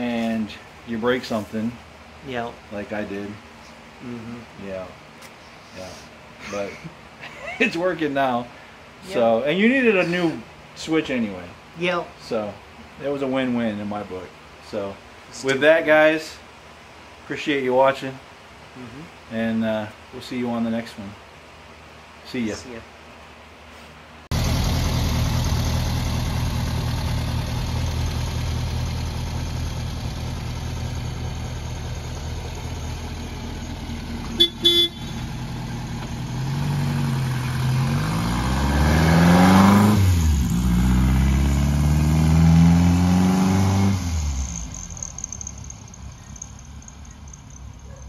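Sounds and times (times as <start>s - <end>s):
car engine idling: 24.3s - 37.8s, 44.2s - 48.0s
car engine accelerating: 24.3s - 47.3s
car horn toots: 34.3s - 35.4s.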